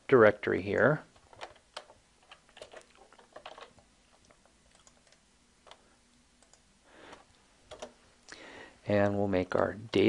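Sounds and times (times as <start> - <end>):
keyboard and mouse clicking: 1.2 - 8.0.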